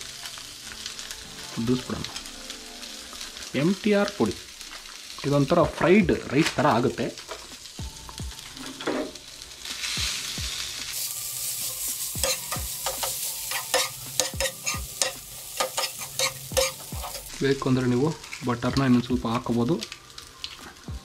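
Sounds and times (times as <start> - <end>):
rice sizzling in a frying pan: 0.0 - 21.0
steel spatula scraping a pan: 10.9 - 17.4.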